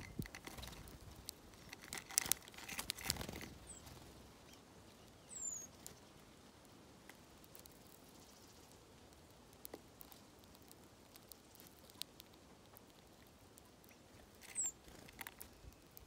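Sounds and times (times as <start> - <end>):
birds pecking seed: 0.0 - 16.0
bird chirp: 2.9 - 6.6, 7.4 - 10.2, 11.1 - 16.0.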